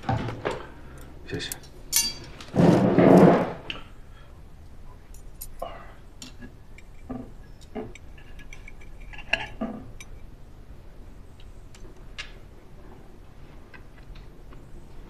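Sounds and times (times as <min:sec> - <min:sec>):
cutlery clinking on plate: 0:01.9 - 0:02.3.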